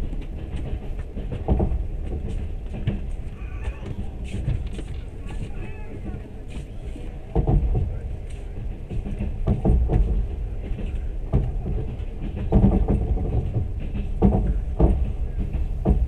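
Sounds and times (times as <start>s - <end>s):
train rumbling on track: 0.0s - 16.0s
wheels clacking over rail joints: 0.0s - 16.0s.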